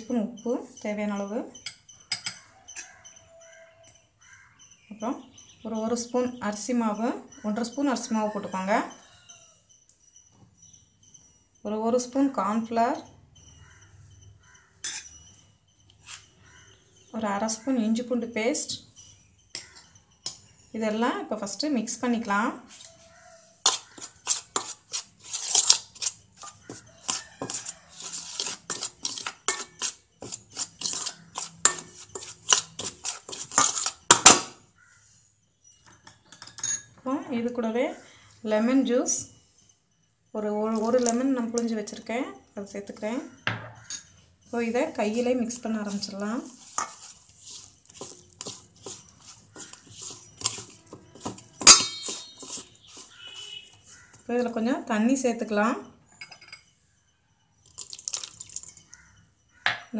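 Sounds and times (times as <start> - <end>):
spoon scraping in a metal bowl: 0.0 - 4.0, 14.6 - 16.6, 17.5 - 35.2, 40.6 - 42.0, 43.7 - 55.2.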